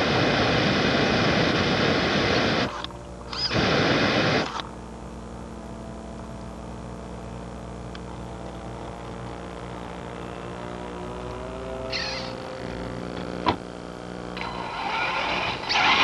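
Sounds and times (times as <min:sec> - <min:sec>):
hum of pitched tones: 0:00.0 - 0:16.0
flamethrower blast: 0:03.4 - 0:04.5, 0:14.8 - 0:16.0.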